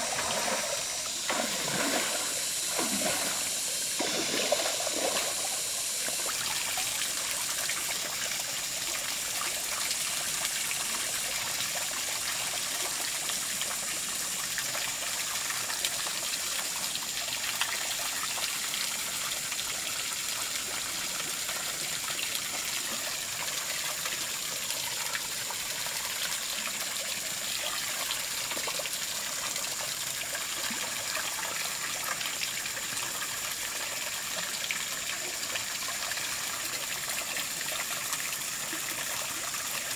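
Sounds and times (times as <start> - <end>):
faint high whine: 0.0 - 9.5
trickle of running water: 0.0 - 39.9.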